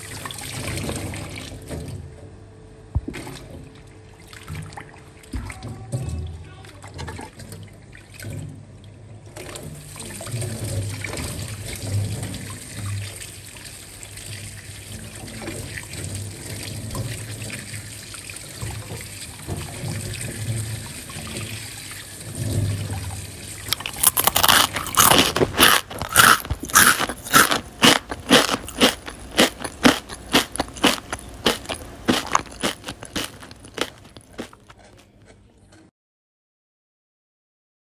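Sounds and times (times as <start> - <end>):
brine trickling and dripping: 3.1 - 34.8
crisp crunching clicks: 23.7 - 35.1.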